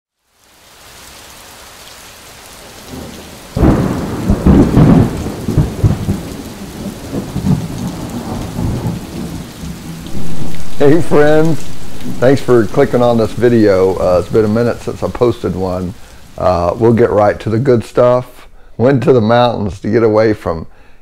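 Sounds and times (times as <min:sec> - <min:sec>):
rain hissing: 0:00.2 - 0:20.9
thunder rumbling: 0:02.6 - 0:17.6.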